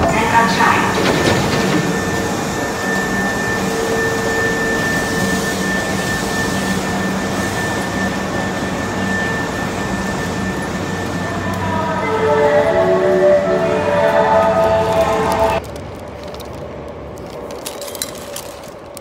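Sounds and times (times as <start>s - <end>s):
subway train mechanical drone: 0.0s - 19.0s
high whine: 1.5s - 15.6s.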